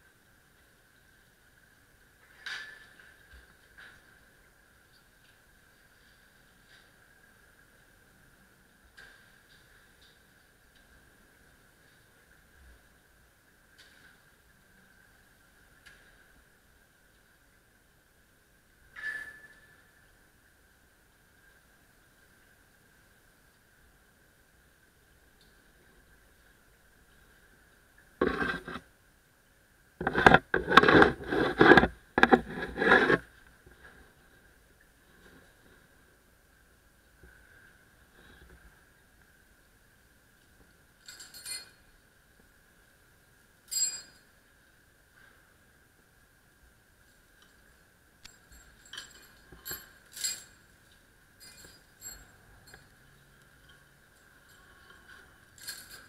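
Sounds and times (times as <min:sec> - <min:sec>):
scraping on camera: 0:28.2 - 0:28.9, 0:30.0 - 0:34.2
steel chain links clinking: 0:41.0 - 0:41.9, 0:43.7 - 0:44.3, 0:47.4 - 0:56.0.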